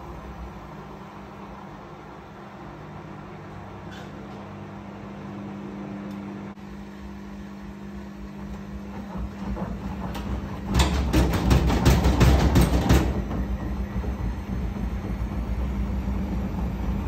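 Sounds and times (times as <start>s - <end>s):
washing machine humming: 0.0s - 17.0s
washing machine knocking: 8.4s - 17.0s.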